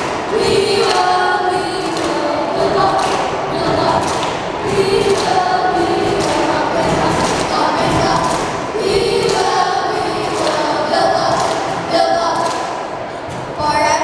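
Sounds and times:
children singing in unison: 0.0 - 13.5.

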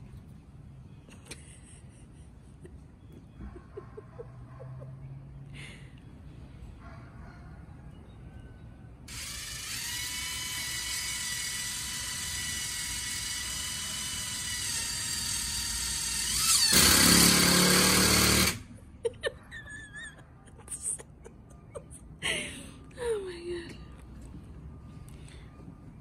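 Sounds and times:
electric drill whining: 9.1 - 18.7.

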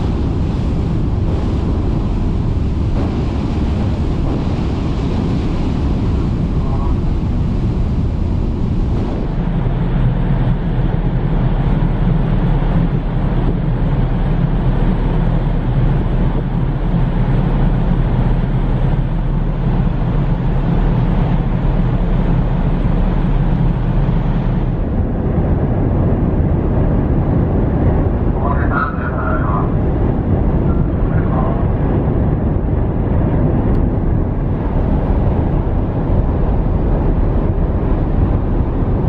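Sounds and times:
wind rushing: 0.0 - 11.3, 23.8 - 39.0
churned water: 0.0 - 39.0
ship engines droning: 0.0 - 39.0.

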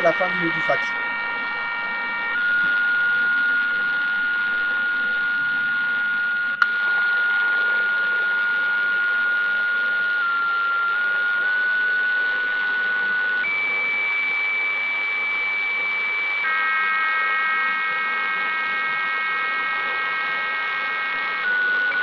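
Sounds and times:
radio hiss: 0.0 - 1.0
steady electronic radio tones: 0.0 - 22.0.

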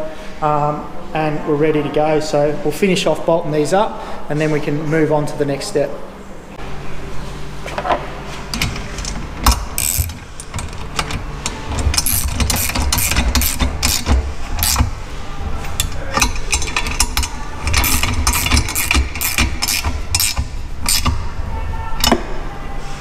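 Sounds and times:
socket ratchet clicking: 8.6 - 15.0, 15.8 - 21.3.

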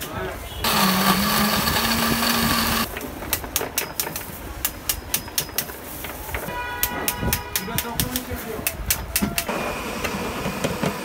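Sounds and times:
blender running: 0.6 - 2.9.

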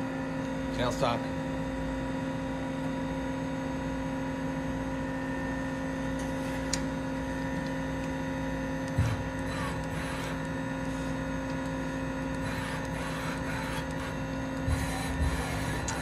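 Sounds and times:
machine humming: 3.5 - 16.0.

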